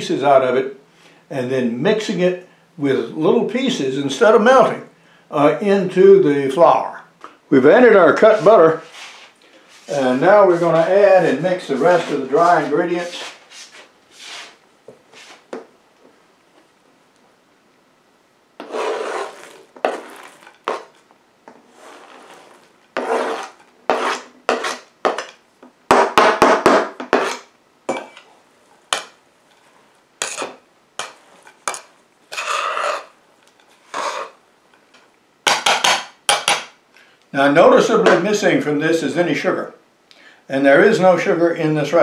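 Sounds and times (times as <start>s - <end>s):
knife scraping cutting board: 8.2s - 15.4s, 18.6s - 21.0s, 21.6s - 25.4s, 27.0s - 28.3s, 28.9s - 34.4s
scraping and stirring in bowl: 8.2s - 15.5s, 18.6s - 25.4s, 27.0s - 34.4s.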